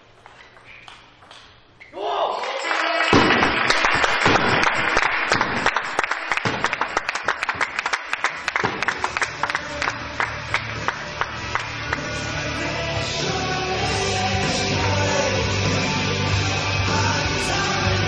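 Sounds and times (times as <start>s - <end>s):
spectators clapping: 2.3s - 12.8s.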